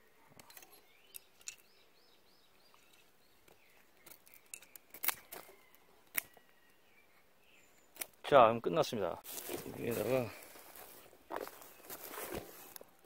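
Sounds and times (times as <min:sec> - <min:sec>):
bird chirping: 0:00.0 - 0:08.9
knife cutting wooden branch: 0:04.0 - 0:06.4.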